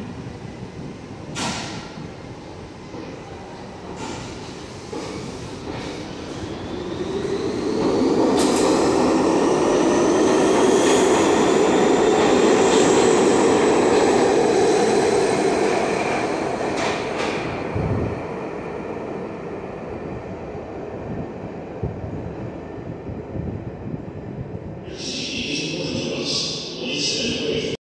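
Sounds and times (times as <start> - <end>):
subway train pulling out: 0.0 - 27.8.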